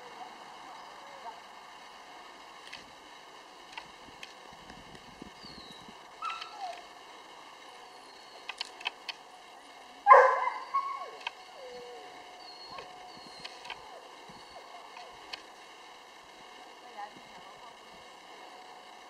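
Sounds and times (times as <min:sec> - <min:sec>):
small ticks: 0:02.5 - 0:03.0, 0:03.6 - 0:07.0, 0:07.9 - 0:09.3, 0:10.3 - 0:15.7
dog barking: 0:10.1 - 0:11.2
faint high chirps: 0:10.1 - 0:15.1.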